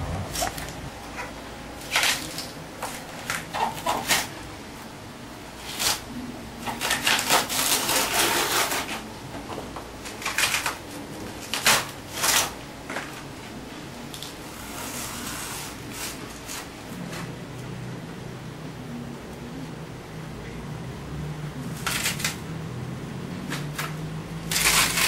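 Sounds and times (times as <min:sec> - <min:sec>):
banana trunk layers tearing: 0:01.8 - 0:04.3, 0:05.6 - 0:09.0, 0:10.1 - 0:13.1, 0:21.6 - 0:22.5, 0:23.4 - 0:25.0.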